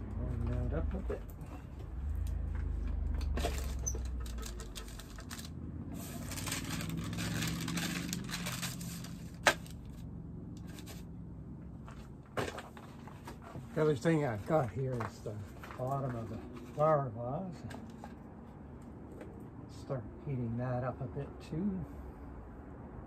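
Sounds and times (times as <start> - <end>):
parchment paper rustling: 3.3 - 10.0, 11.8 - 16.9.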